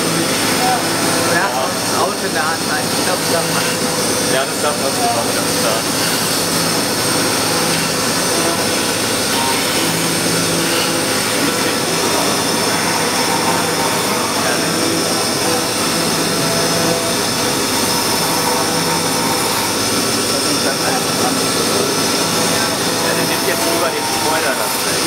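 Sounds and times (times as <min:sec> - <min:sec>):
milling machine cutting wood: 0:00.0 - 0:25.0.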